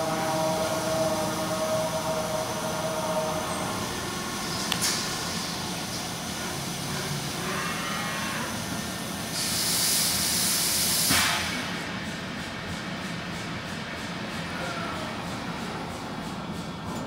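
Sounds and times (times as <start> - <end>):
high hiss of coolant spray: 0.0 - 11.8
machining centre humming: 0.0 - 17.0.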